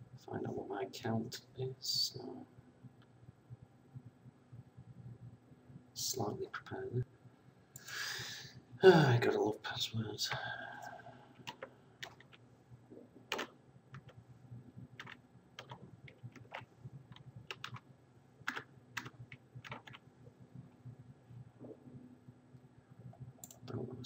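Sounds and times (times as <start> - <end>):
keyboard keys tapping: 11.4 - 12.4, 13.3 - 14.2, 14.9 - 17.8, 18.5 - 20.0.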